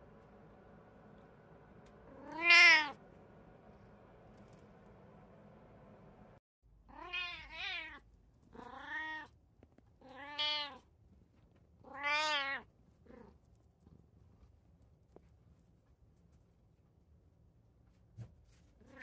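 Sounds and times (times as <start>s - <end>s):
cat meowing: 2.1s - 3.0s, 6.9s - 9.3s, 10.0s - 10.8s, 11.8s - 13.3s.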